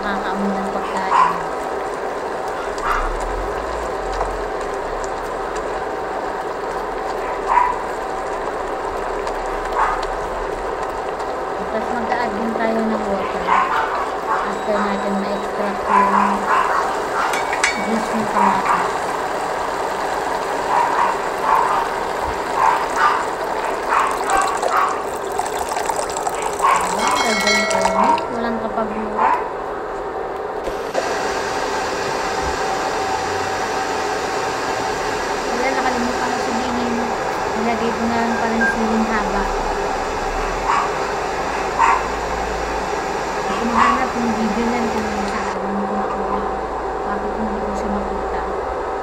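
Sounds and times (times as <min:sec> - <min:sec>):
vegetables sizzling in a wok: 0:14.0 - 0:28.4, 0:30.7 - 0:45.6
water pouring into a wok: 0:17.4 - 0:28.3.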